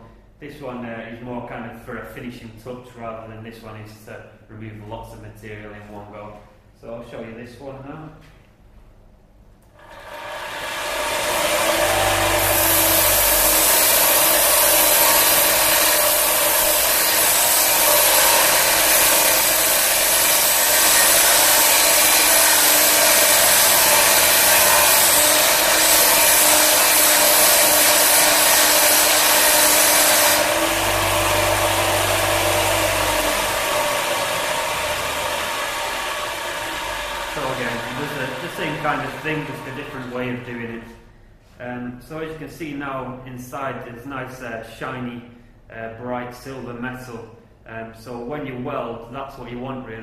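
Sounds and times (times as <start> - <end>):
sanding disc grinding steel: 9.9 - 40.0
grinder motor hum: 9.9 - 40.2.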